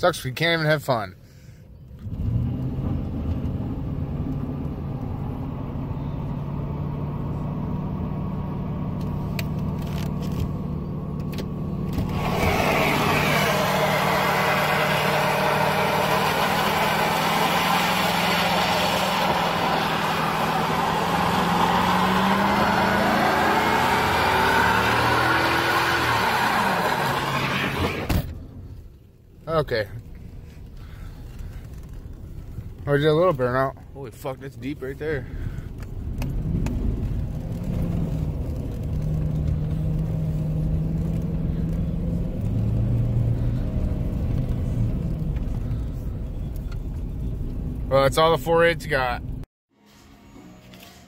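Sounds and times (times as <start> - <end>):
pickup engine at high revs: 11.9 - 28.2
spinning tyre hiss: 12.0 - 28.1.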